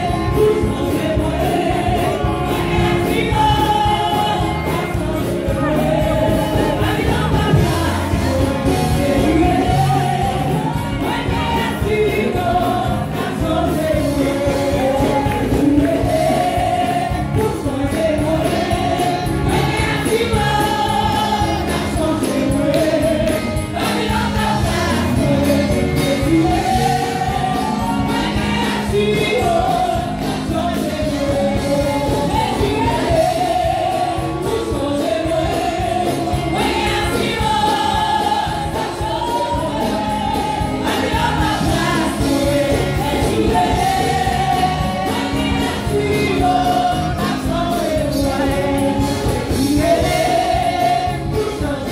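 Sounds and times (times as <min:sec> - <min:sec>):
congregation singing: 0:00.0 - 0:51.9.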